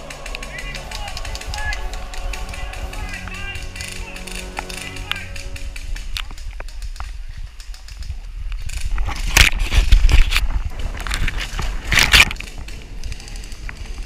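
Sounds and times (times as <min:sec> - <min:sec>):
camera handling rumble: 0:03.8 - 0:14.0.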